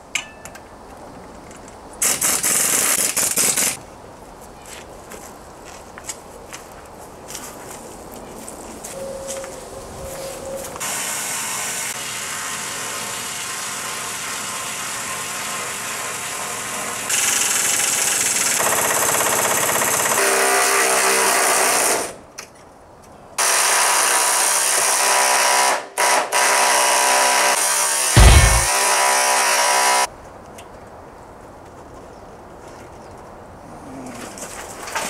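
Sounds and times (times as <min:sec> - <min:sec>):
power tool running: 0:28.1 - 0:28.8.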